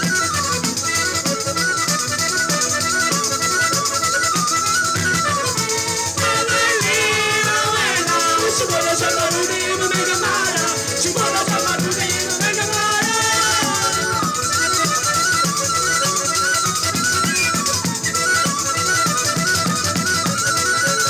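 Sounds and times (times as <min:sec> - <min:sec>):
sliding melody line: 0:00.0 - 0:21.0
frame drum beat: 0:05.2 - 0:14.4.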